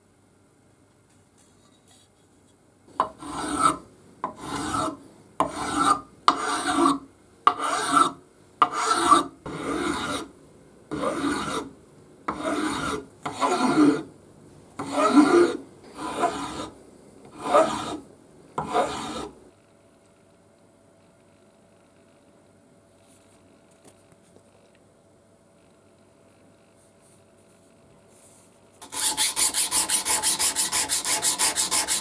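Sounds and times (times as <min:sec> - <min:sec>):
file rasping on metal: 0:03.0 - 0:10.3, 0:10.9 - 0:11.7, 0:12.3 - 0:14.1, 0:14.8 - 0:16.7, 0:17.3 - 0:18.0, 0:18.6 - 0:19.3, 0:28.8 - 0:32.0.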